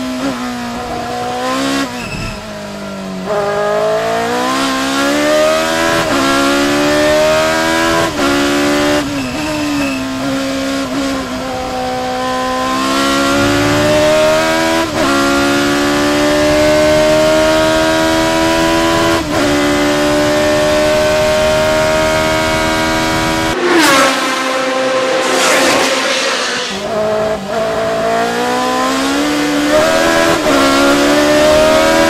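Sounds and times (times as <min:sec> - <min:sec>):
racing car engine at full throttle: 0:00.0 - 0:32.0.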